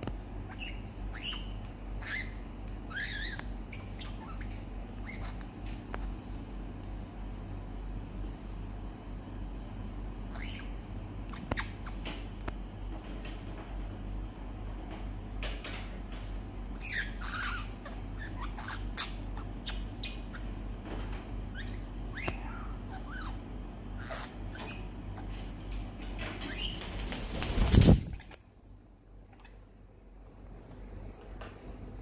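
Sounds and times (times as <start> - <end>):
bird chirps: 0.5 - 5.4, 10.3 - 10.8, 16.8 - 20.6
bird wings flapping: 26.2 - 28.4.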